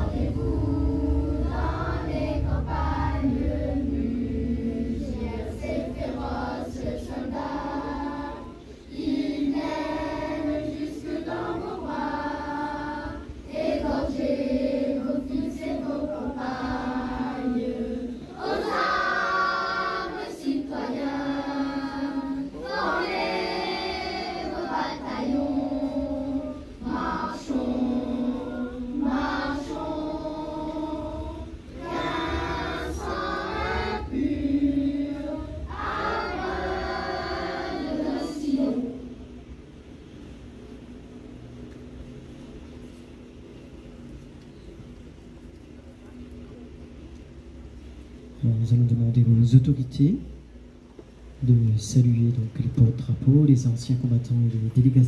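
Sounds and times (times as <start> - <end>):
children's choir singing: 0.0 - 39.4.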